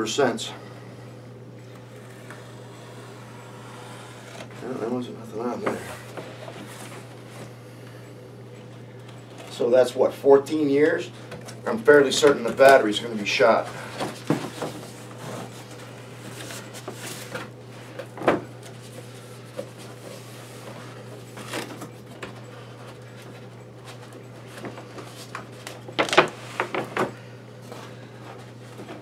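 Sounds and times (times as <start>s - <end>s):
low steady hum: 0.0s - 29.0s
cardboard rustling and scraping: 2.4s - 7.5s, 13.6s - 17.5s.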